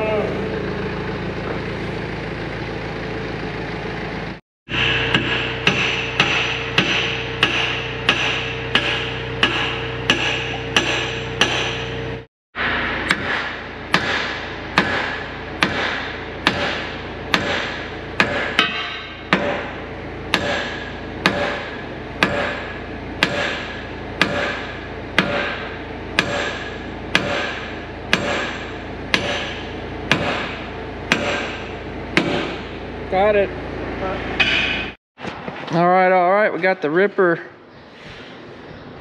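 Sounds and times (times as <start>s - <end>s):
hammer striking steel pin: 4.7s - 12.0s, 13.1s - 32.7s, 34.4s - 34.9s.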